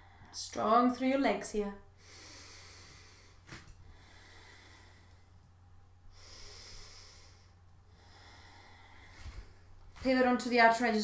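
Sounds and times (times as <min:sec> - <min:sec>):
woman breathing slowly: 0:00.0 - 0:00.4, 0:01.9 - 0:10.0
low steady hum: 0:00.0 - 0:11.0.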